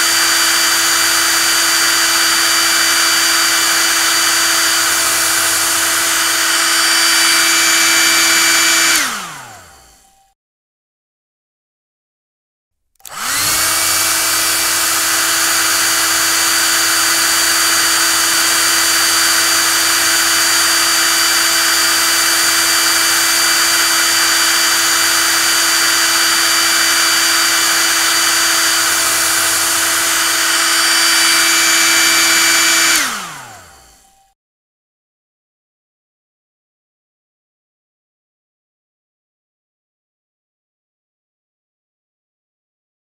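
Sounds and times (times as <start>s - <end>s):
hair dryer motor whine: 0.0s - 10.4s, 13.0s - 34.4s.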